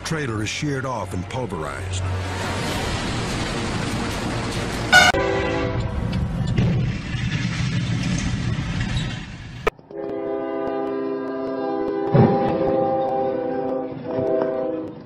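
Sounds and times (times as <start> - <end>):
locomotive air horn: 4.9 - 6.0, 9.9 - 15.0
train horn blowing: 4.9 - 6.0, 9.9 - 15.0
rumbling and crashing: 5.7 - 9.8.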